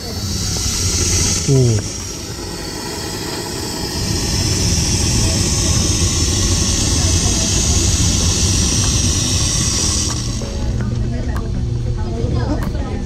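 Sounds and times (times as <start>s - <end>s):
steam wand hissing: 0.0s - 11.1s.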